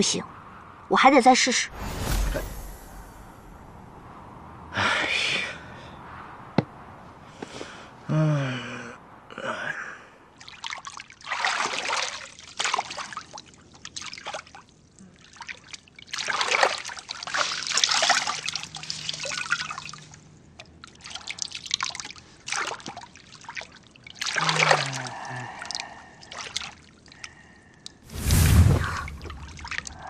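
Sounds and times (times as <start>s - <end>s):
bath water trickling and splashing: 10.4s - 30.0s.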